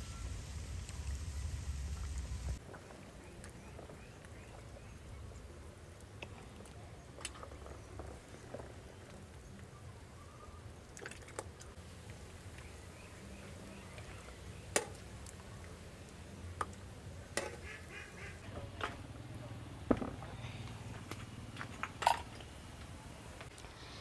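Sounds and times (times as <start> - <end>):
low hum: 0.0 - 5.7.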